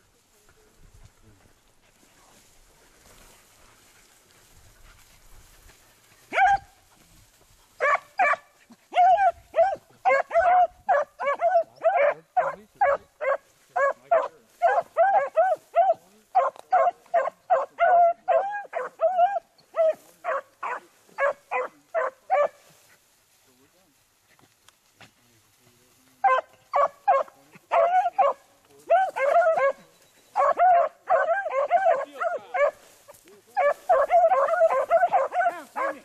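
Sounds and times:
dogs yelping: 0:06.3 - 0:06.7, 0:07.8 - 0:22.6, 0:26.2 - 0:32.8, 0:33.6 - 0:36.0
dog barking: 0:06.3 - 0:06.8, 0:07.8 - 0:22.6, 0:26.2 - 0:32.8, 0:33.6 - 0:36.0.

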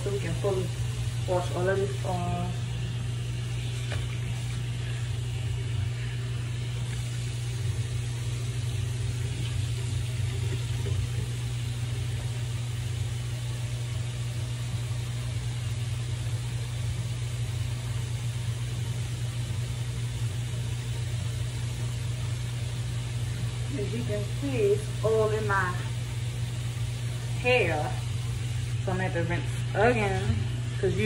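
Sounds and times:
low hum: 0:00.0 - 0:16.0
water running from tap: 0:00.0 - 0:31.0.

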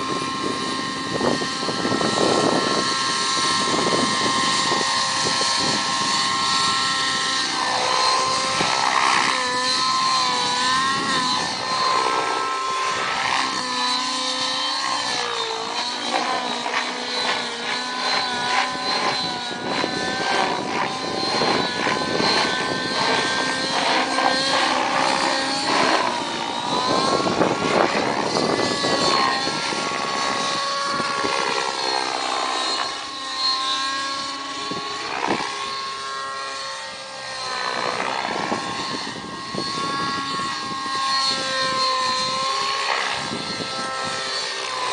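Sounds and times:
model helicopter engine and rotor: 0:00.0 - 0:44.9.

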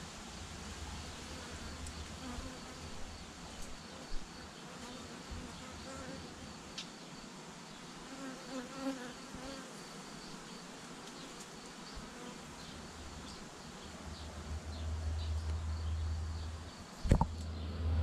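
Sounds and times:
honeybees buzzing: 0:00.6 - 0:16.5
low rumble: 0:13.9 - 0:18.0.

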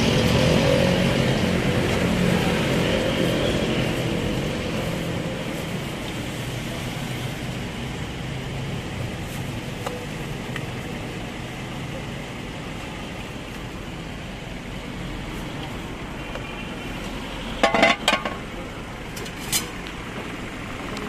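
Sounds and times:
vehicle engine passing: 0:00.0 - 0:09.2
traffic hum: 0:00.0 - 0:21.0.

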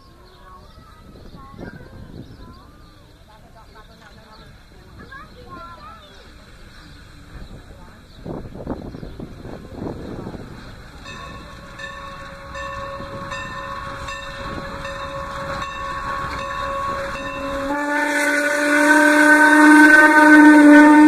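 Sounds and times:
steam locomotive chuffing: 0:03.0 - 0:21.0
steam whistle blast: 0:11.3 - 0:21.0.

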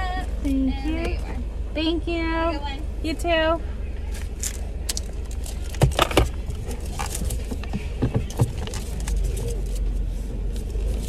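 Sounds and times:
car engine rumble in cabin: 0:00.0 - 0:11.0
clicks knocks and rattles: 0:04.4 - 0:09.6.

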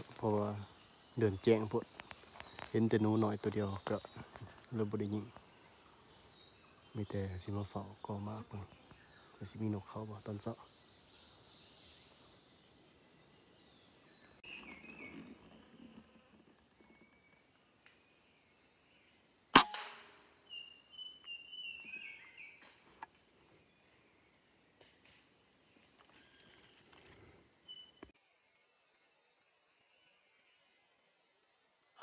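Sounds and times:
high insect drone: 0:00.0 - 0:32.0
rifle shot: 0:19.5 - 0:20.3.

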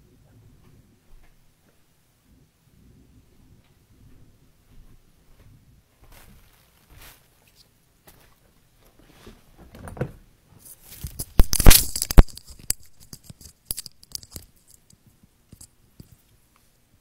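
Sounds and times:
phone handling clicks and rustles: 0:11.0 - 0:16.2.

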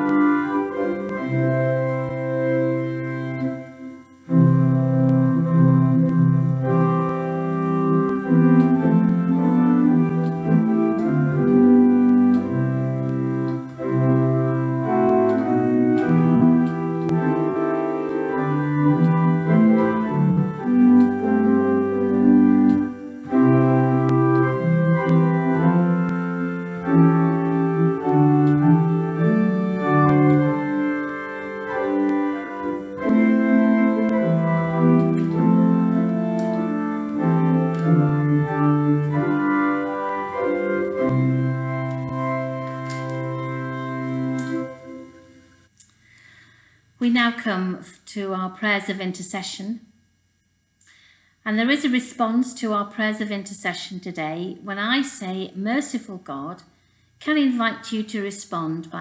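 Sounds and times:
organ playing hymn: 0:00.0 - 0:45.8.

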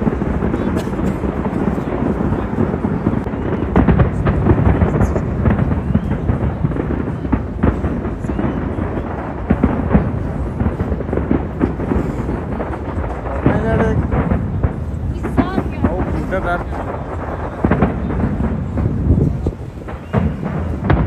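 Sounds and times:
low rumble of fireworks booms: 0:00.0 - 0:21.0
sharp fireworks bangs: 0:00.0 - 0:21.0.

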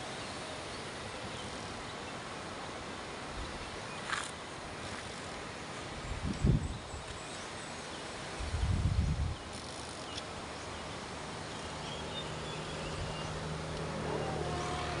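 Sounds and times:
wind rumble on microphone: 0:05.9 - 0:07.2, 0:08.3 - 0:09.6
faint insect or bird chirps: 0:05.9 - 0:15.0
vehicle engine humming: 0:11.3 - 0:15.0.

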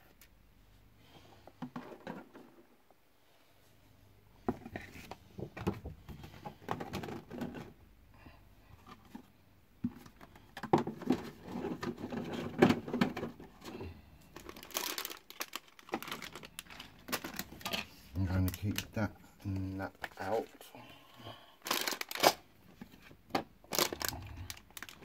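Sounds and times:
plastic and cardboard rustling: 0:04.4 - 0:07.8, 0:08.8 - 0:19.1, 0:21.6 - 0:25.0.

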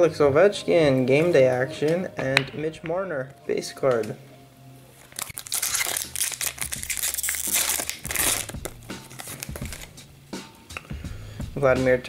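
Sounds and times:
foil wrapper crinkling and tearing: 0:05.0 - 0:09.9
cards rustling: 0:05.0 - 0:10.0.

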